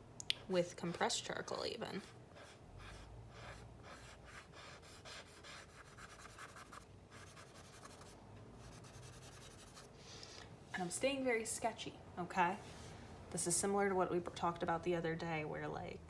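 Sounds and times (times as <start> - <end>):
charcoal scratching on paper: 1.5 - 9.9.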